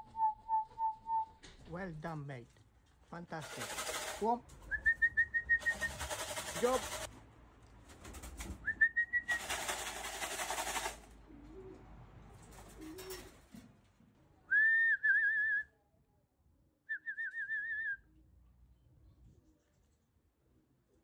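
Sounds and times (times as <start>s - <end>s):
person whistling: 0.0s - 1.3s, 4.7s - 6.0s, 14.5s - 15.7s, 16.9s - 18.0s.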